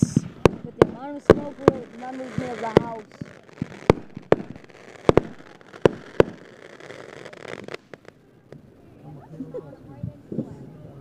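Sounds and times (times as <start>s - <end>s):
small firework pops: 0.0s - 8.7s
fireworks bangs: 0.0s - 8.9s.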